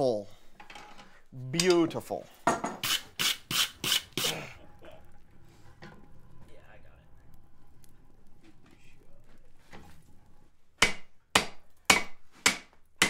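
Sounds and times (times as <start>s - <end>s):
wire brush rasping on steel: 2.8s - 4.5s.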